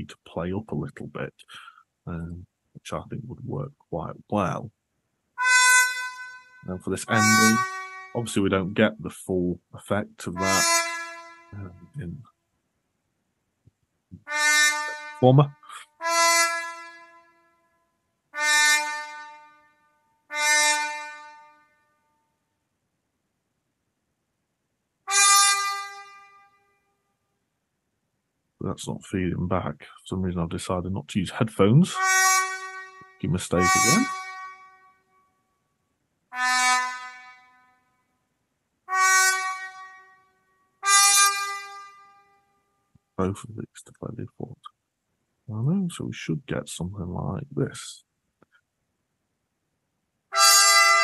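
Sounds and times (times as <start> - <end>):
sampled trumpet notes: 5.4 - 12.2, 14.1 - 17.2, 18.4 - 19.5, 20.3 - 21.4, 25.1 - 26.2, 30.9 - 34.7, 36.3 - 37.6, 38.9 - 40.0, 40.8 - 42.0, 50.3 - 51.0.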